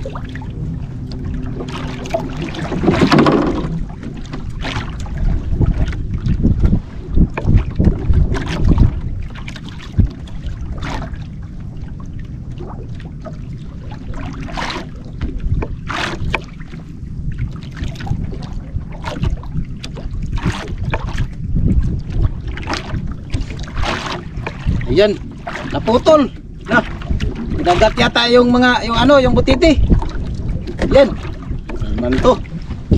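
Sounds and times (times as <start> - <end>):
sharp water splashes: 0.0 - 6.5, 22.2 - 32.5
water lapping against boat: 0.0 - 32.9
wind rumbling on microphone: 0.0 - 32.9.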